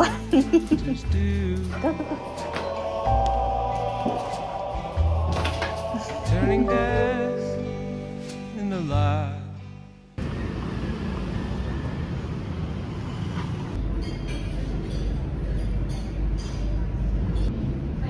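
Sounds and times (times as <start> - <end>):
background music: 0.0 - 10.2.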